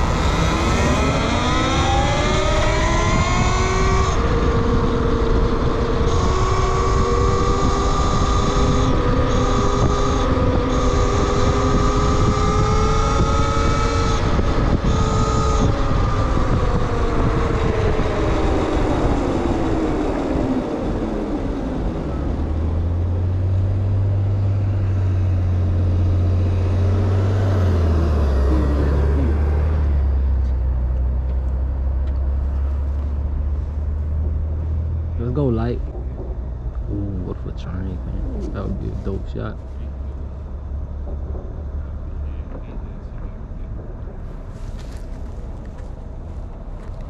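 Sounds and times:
wind rush: 0.0 - 22.4.

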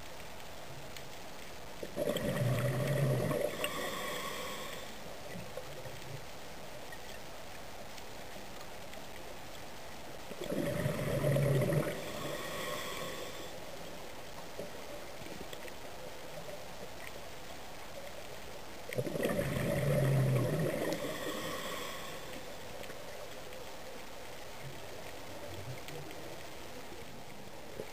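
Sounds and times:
diver's breath bubbling: 1.8 - 4.9, 10.4 - 13.4, 19.0 - 22.4
underwater hiss: 1.9 - 5.4, 10.4 - 14.0, 19.0 - 23.0.

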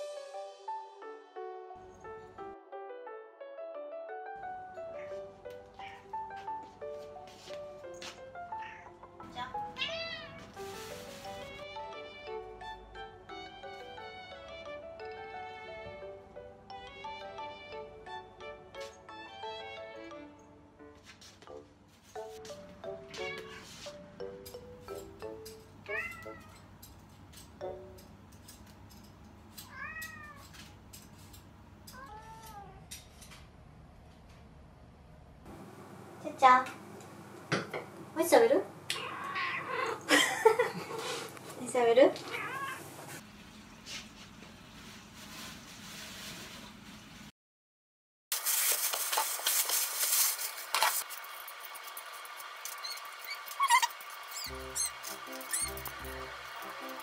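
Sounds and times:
cat meowing: 5.8 - 6.1, 8.5 - 9.0, 9.7 - 10.4, 23.1 - 23.7, 25.9 - 26.6, 29.7 - 30.4, 32.0 - 32.9, 38.9 - 40.1, 42.3 - 42.9.

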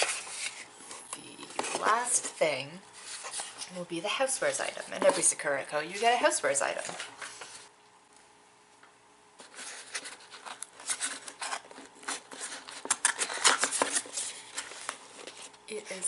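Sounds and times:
packaging crinkling and rustling: 0.0 - 2.4, 9.4 - 15.6.

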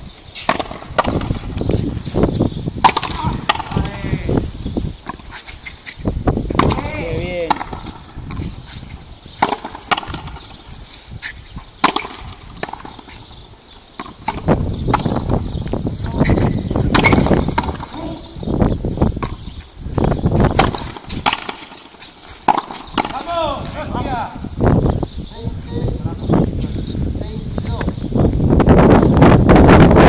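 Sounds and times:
ball smacking rackets and wall: 0.4 - 4.4, 5.0 - 15.4, 16.0 - 18.4, 19.0 - 24.2.

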